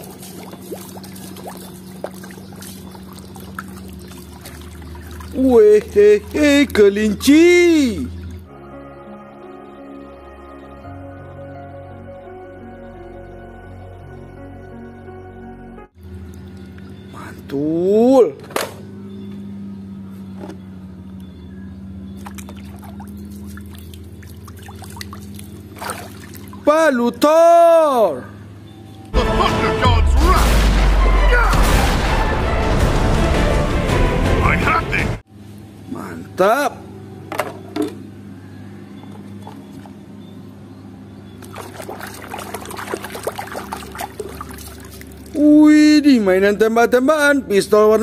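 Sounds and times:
gurgling bubbles: 0.0s - 6.4s, 41.4s - 45.4s
water sloshing in a plastic tub: 0.0s - 7.4s, 22.2s - 26.7s, 41.4s - 45.4s.

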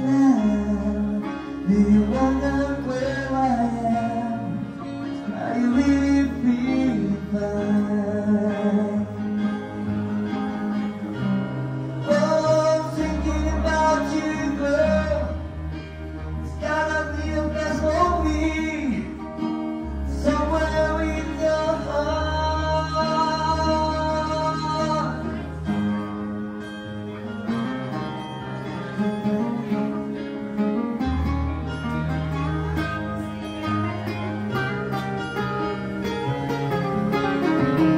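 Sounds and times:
man singing into a microphone: 0.0s - 9.6s, 12.0s - 26.0s
acoustic guitar: 0.0s - 37.9s
keyboard: 0.0s - 37.9s.

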